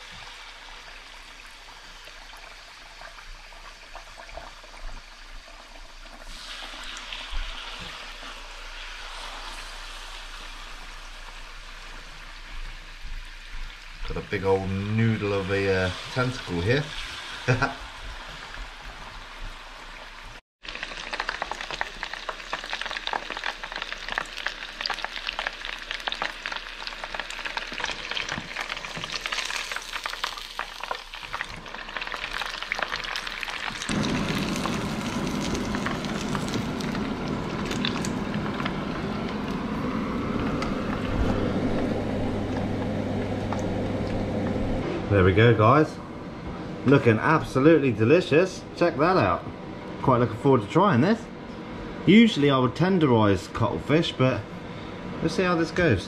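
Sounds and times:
deep-frying crackling sizzle: 0.0s - 44.8s
low hum: 33.9s - 48.8s.

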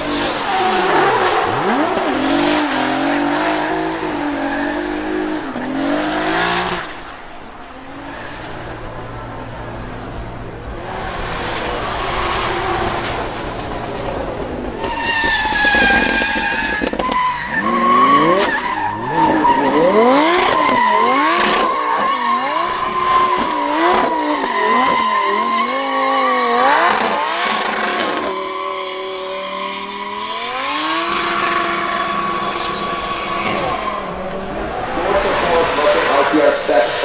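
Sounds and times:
car engine revving: 0.0s - 37.0s
high-pitched tyre squeal: 0.0s - 37.0s.

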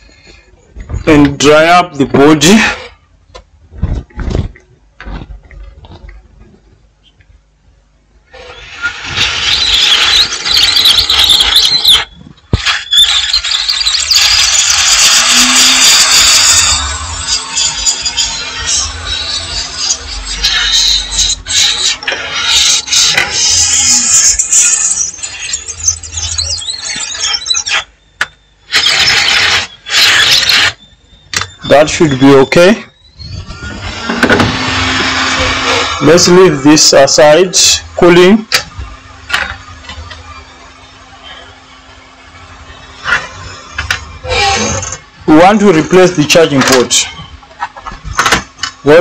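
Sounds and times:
hissing bursts: 8.4s - 27.8s, 28.7s - 30.8s
hot air station whining hiss: 11.8s - 25.6s, 28.7s - 32.6s, 33.5s - 47.4s.

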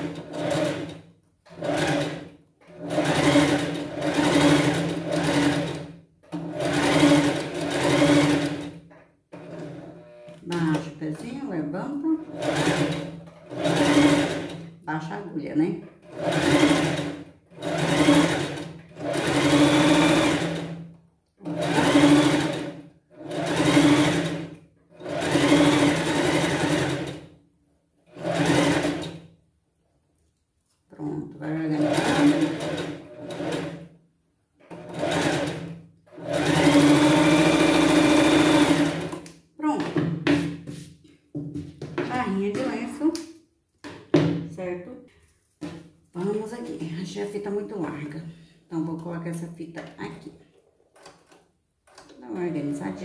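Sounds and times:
sewing machine running: 0.0s - 10.4s, 12.2s - 14.7s, 16.0s - 20.8s, 21.4s - 27.3s, 28.1s - 29.2s, 31.7s - 33.9s, 34.6s - 39.2s.

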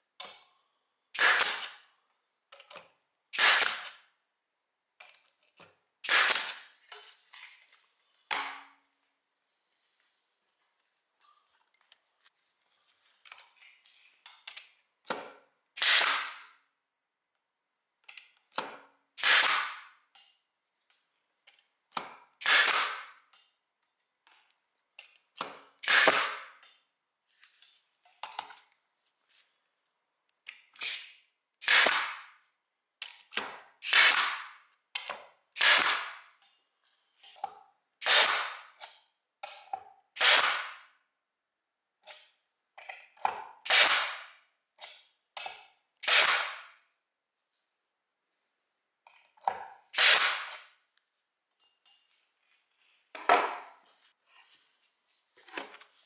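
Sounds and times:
pneumatic stapler firing: 1.2s - 1.8s, 3.3s - 4.0s, 6.0s - 6.7s, 15.8s - 16.5s, 19.2s - 20.0s, 22.4s - 23.2s, 25.8s - 26.6s, 30.8s - 32.3s, 33.8s - 34.6s, 35.6s - 36.2s, 38.0s - 38.7s, 40.2s - 40.8s, 43.6s - 44.3s, 46.0s - 46.7s, 49.9s - 50.7s.

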